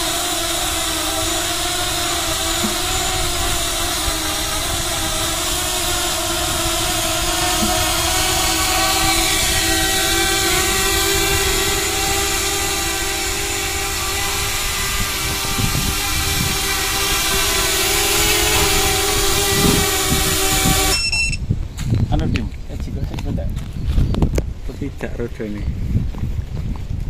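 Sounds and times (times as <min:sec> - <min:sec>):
quadcopter motors whining: 0:00.0 - 0:21.5.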